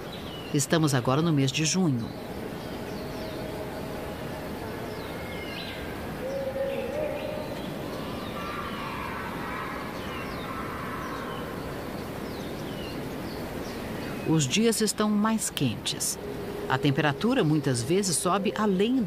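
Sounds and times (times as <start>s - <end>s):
background hiss: 0.0s - 19.0s
birds chirping: 0.0s - 19.0s
lower bird call: 2.1s - 14.3s.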